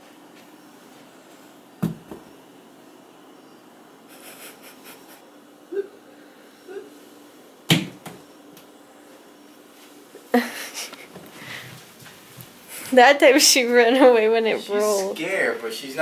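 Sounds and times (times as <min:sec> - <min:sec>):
sharp knock: 0:01.8 - 0:02.3.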